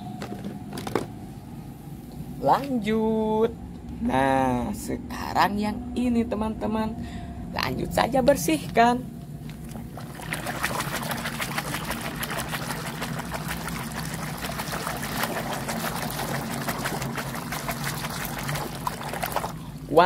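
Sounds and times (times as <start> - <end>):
water sloshing in plastic basin: 9.5 - 19.8.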